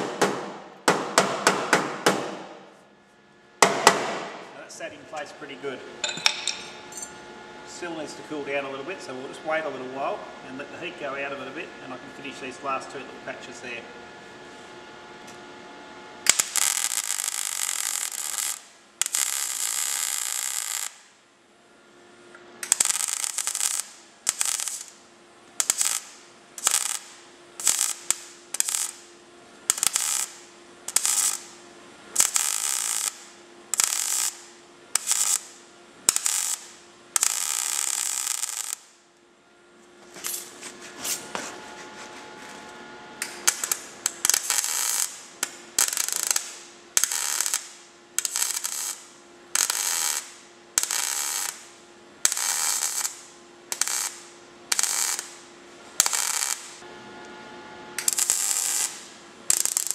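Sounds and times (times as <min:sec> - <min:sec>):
welder arc crackling: 0:16.2 - 0:21.2, 0:22.6 - 0:39.0, 0:43.2 - 0:56.9, 0:58.0 - 0:59.9.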